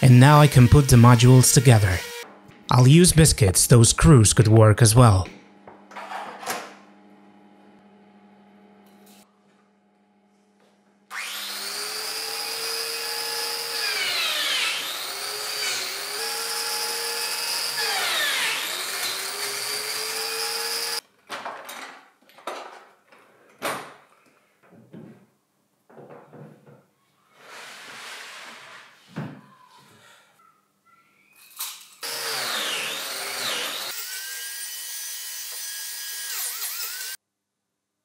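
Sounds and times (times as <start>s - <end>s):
biscuit joiner whining: 0.0s - 2.2s, 32.0s - 34.1s.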